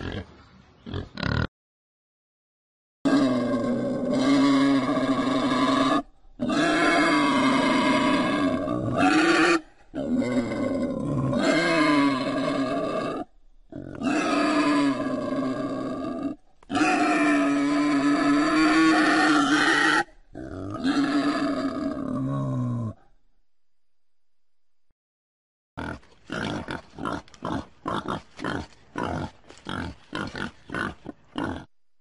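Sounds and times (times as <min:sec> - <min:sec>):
wild boar calls: 0:03.1 - 0:23.1.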